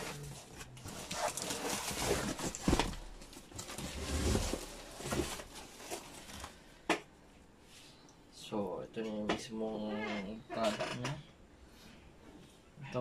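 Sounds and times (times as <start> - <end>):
cardboard box scraping and rustling: 0.0 - 3.0, 3.6 - 6.3.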